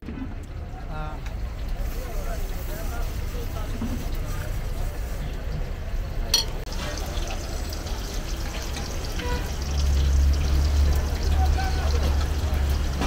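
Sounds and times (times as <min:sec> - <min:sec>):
liver sizzling in oil: 0:01.5 - 0:05.2, 0:06.6 - 0:13.0.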